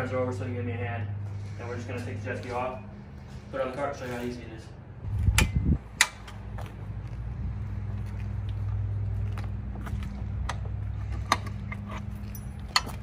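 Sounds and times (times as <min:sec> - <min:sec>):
steady low hum: 0:00.0 - 0:13.0
metallic clicks and rattles of winch: 0:10.4 - 0:13.0.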